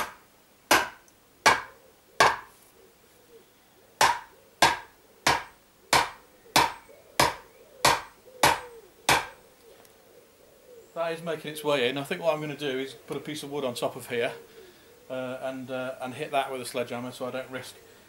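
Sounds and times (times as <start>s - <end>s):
sledgehammer knocking on bamboo pole: 0.0s - 2.5s, 4.0s - 9.3s.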